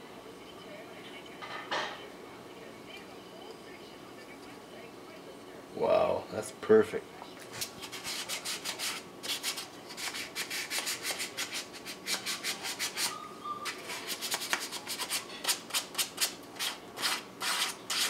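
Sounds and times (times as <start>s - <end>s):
sandpaper rasping on wood: 16.6s - 18.0s.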